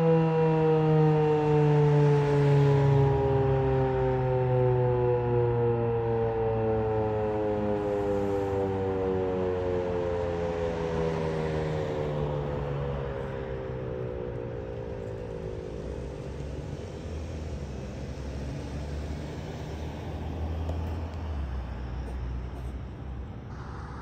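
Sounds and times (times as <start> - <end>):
rotating siren winding down: 0.0 - 17.1
low rumble: 21.0 - 24.0.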